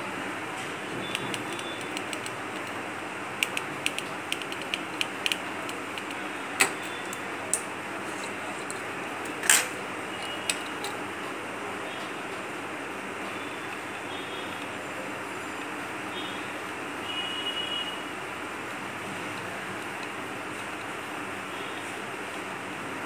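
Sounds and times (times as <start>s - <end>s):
tweezers clicking on circuit board: 1.1s - 2.8s, 3.4s - 6.2s.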